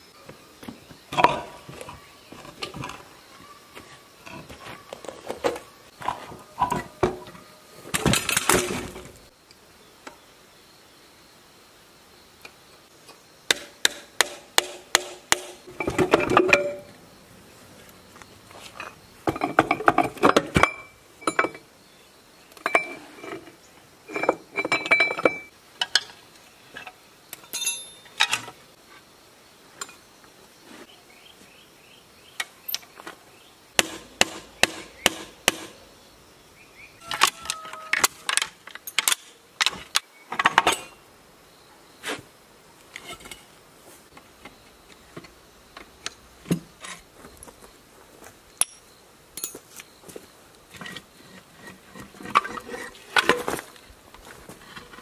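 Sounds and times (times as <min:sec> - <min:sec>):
metal tools clanking: 0:15.8 - 0:16.9, 0:18.8 - 0:21.7, 0:22.6 - 0:23.5, 0:24.1 - 0:26.1, 0:27.4 - 0:28.5, 0:48.6 - 0:49.8.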